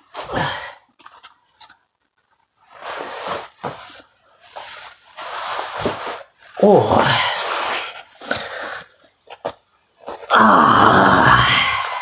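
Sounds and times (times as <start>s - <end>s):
record sleeves rustling and scraping: 1.0s - 6.6s.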